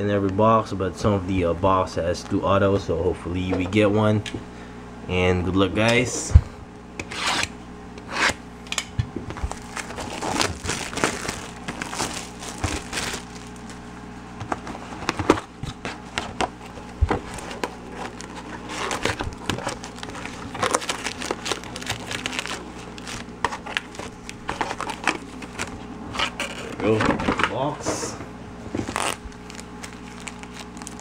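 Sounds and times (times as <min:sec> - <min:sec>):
plastic wrap crinkling: 0:09.4 - 0:27.0, 0:28.8 - 0:31.0.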